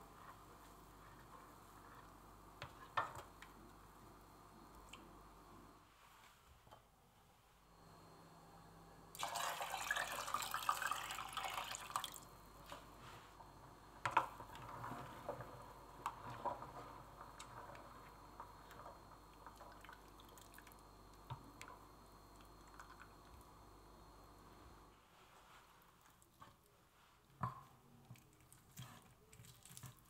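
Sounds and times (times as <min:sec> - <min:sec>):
liquid pouring into saucepan: 0:09.2 - 0:12.3, 0:19.4 - 0:20.8.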